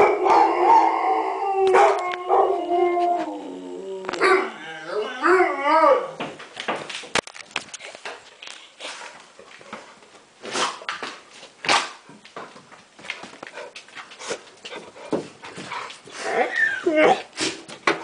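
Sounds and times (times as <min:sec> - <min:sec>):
dogs barking: 0:00.0 - 0:00.9, 0:01.7 - 0:02.5
dog whimpering and whining: 0:16.2 - 0:17.3.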